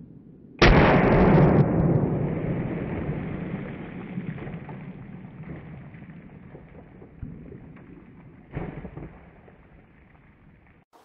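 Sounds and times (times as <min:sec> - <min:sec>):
rifle shot with long echo: 0:00.1 - 0:06.0.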